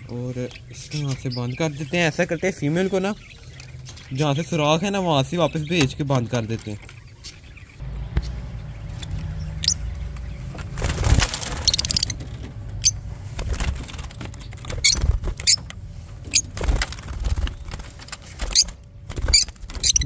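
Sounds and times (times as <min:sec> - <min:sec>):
birds chirping sharply: 0:00.0 - 0:20.0
wings flapping: 0:10.4 - 0:20.0.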